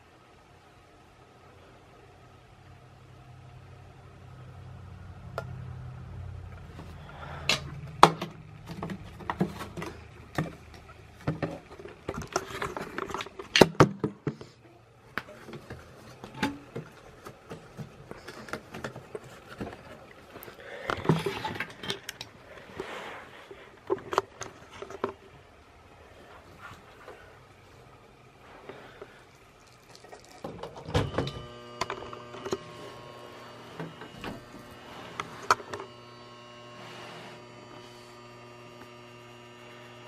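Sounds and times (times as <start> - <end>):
low hum: 1.3 - 11.2.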